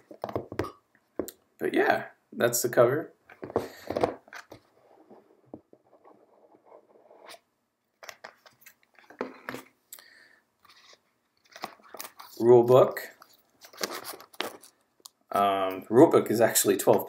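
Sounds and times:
cardboard rustling: 0:13.1 - 0:14.8.

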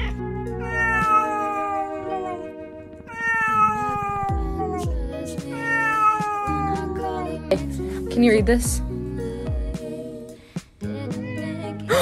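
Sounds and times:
cat meowing: 0:00.0 - 0:07.4.

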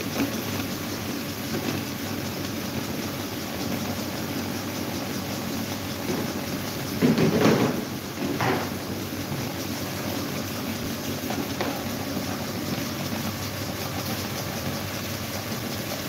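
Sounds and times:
electric fans whirring: 0:00.0 - 0:16.0.

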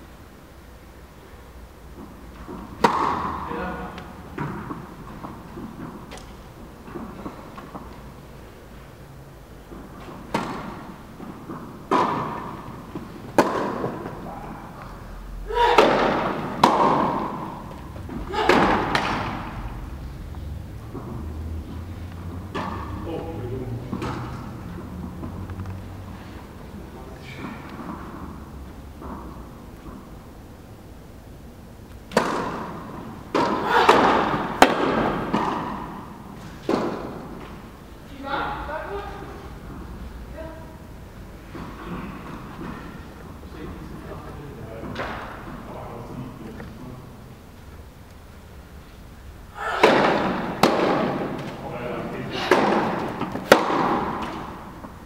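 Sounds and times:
tennis ball hit by rackets: 0:02.0 - 0:08.0, 0:09.6 - 0:14.2, 0:15.5 - 0:19.9, 0:20.8 - 0:23.0, 0:23.9 - 0:25.7, 0:32.0 - 0:37.7, 0:49.6 - 0:51.6, 0:52.4 - 0:55.0.

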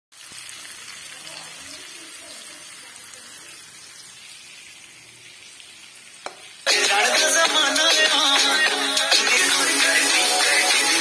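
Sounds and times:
fish frying in oil: 0:00.1 - 0:06.7.

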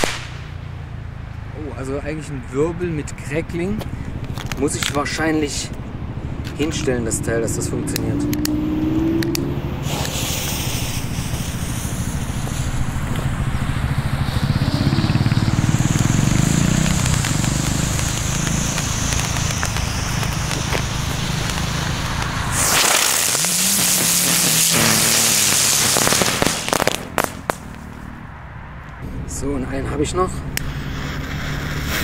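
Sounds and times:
firework spinner hissing sparks: 0:00.0 - 0:00.6, 0:09.6 - 0:28.0, 0:30.6 - 0:32.0.

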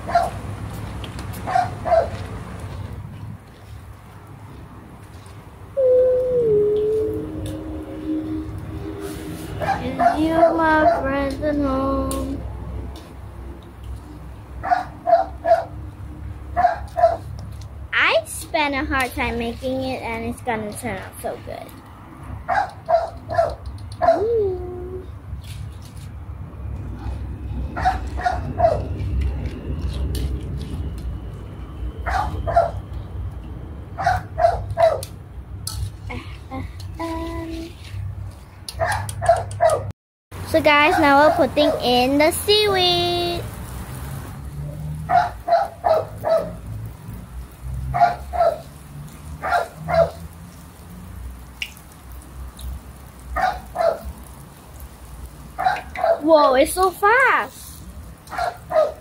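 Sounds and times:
dog barking: 0:00.0 - 0:00.4, 0:01.5 - 0:02.2, 0:09.6 - 0:11.1, 0:14.6 - 0:15.7, 0:16.6 - 0:17.2, 0:22.5 - 0:24.3, 0:27.8 - 0:28.9, 0:32.1 - 0:32.8, 0:34.0 - 0:35.0, 0:38.8 - 0:39.9, 0:45.1 - 0:46.6, 0:47.9 - 0:48.6, 0:49.4 - 0:50.2, 0:53.4 - 0:54.1, 0:55.6 - 0:56.2, 0:58.3 - 0:59.0
small dog yipping: 0:22.5 - 0:24.5
faint oil frying sizzle: 0:40.4 - 0:59.0.

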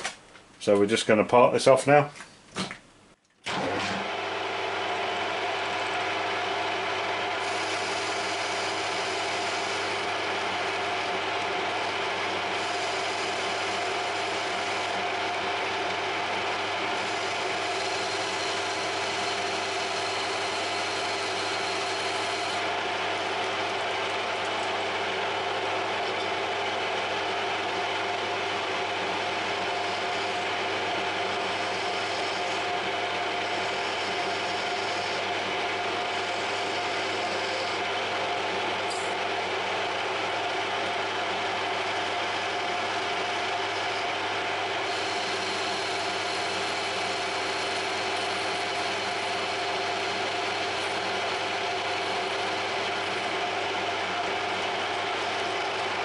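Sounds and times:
lathe running with gear whine: 0:03.5 - 0:56.0
cutting tool hiss: 0:44.9 - 0:53.3.

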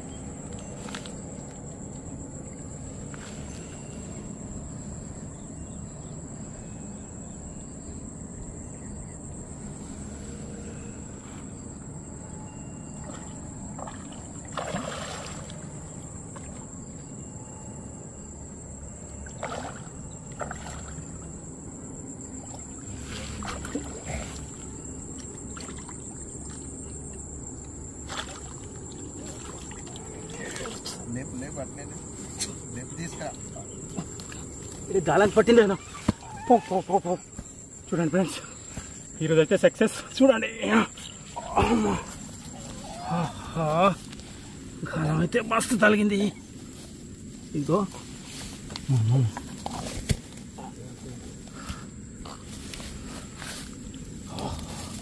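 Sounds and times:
fish splashing in water: 0:13.0 - 0:15.7, 0:19.3 - 0:21.3, 0:28.0 - 0:30.9.

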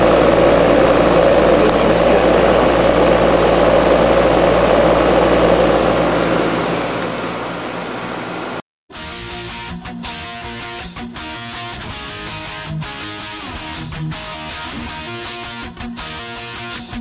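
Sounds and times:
compressor humming: 0:00.0 - 0:08.6
fan blowing air: 0:00.0 - 0:08.6.

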